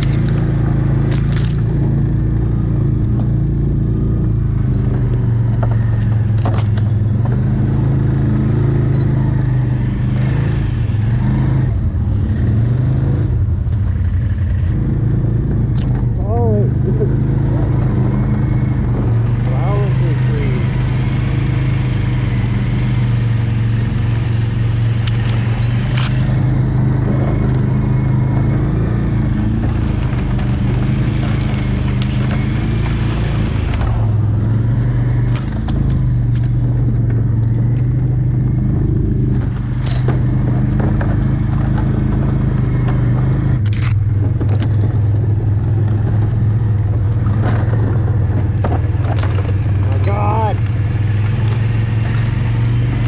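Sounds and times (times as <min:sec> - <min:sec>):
quad engine running under load: 0:00.0 - 0:53.0
sharp clicks and knocks: 0:04.8 - 0:07.5, 0:25.0 - 0:26.4, 0:35.2 - 0:38.1, 0:39.3 - 0:45.2, 0:45.8 - 0:52.3.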